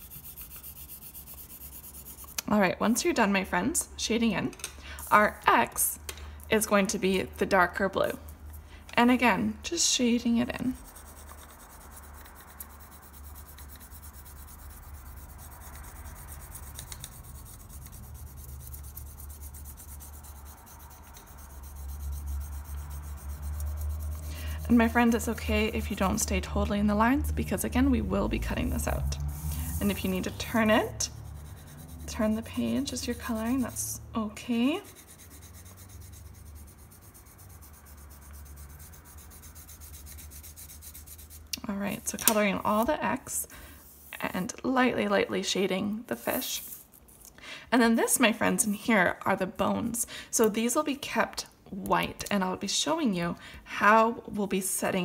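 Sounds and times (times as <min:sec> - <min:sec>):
pencil shading on paper: 0:00.0 - 0:02.4, 0:10.6 - 0:26.7, 0:28.5 - 0:41.5
low rumble: 0:24.6 - 0:34.3.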